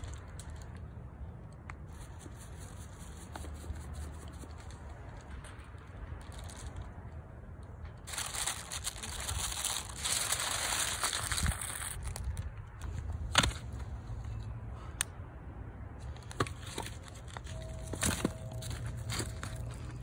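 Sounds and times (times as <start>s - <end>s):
aluminium foil crinkling: 8.0s - 12.4s.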